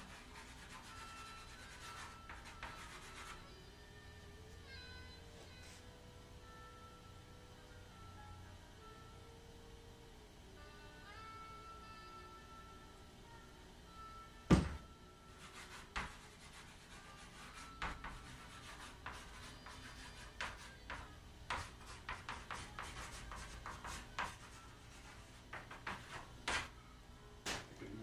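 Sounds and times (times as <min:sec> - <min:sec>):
chalk scratching on chalkboard: 0:00.0 - 0:03.5, 0:15.4 - 0:26.7
sharp knock: 0:14.5 - 0:14.8.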